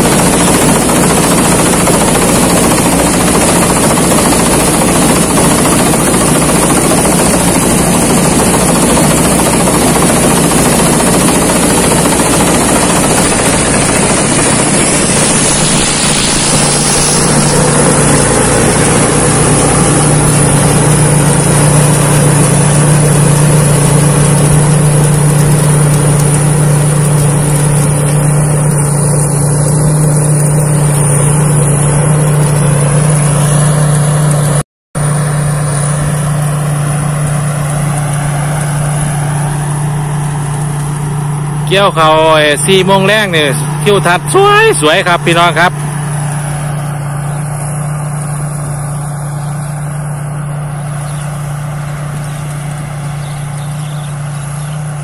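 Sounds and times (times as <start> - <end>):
combine harvester droning: 0.0 - 55.0
thin high whine: 11.6 - 34.4.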